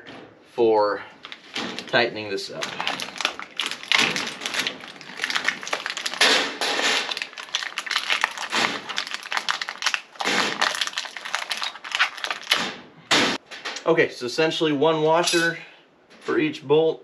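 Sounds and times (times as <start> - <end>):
plastic bag crinkling: 1.2 - 12.9.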